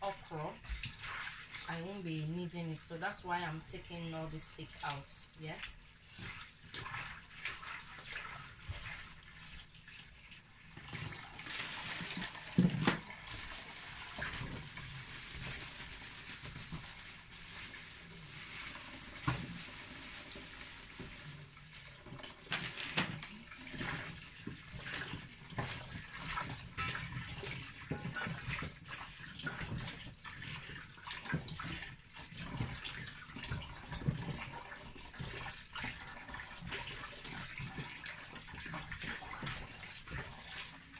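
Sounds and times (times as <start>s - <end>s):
knocks and clatters in sink: 10.7s - 15.8s, 21.9s - 40.8s.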